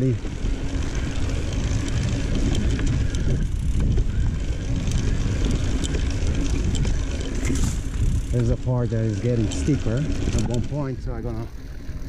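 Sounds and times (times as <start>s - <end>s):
bike clicks and rattles: 0.0s - 12.0s
bike tyres rumbling on dirt: 0.0s - 12.0s
wind on microphone: 1.1s - 9.1s.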